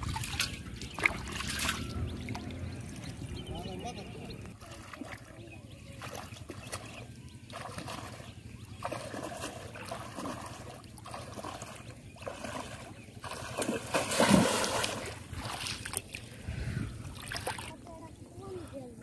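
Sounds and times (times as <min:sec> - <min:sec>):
wading through shallow water: 0:00.0 - 0:19.0
fish trap splashing into water: 0:12.2 - 0:16.0.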